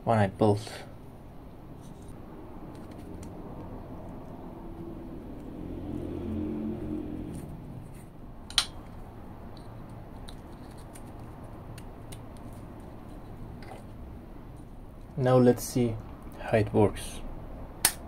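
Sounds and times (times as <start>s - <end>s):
low hum: 0.8s - 15.2s.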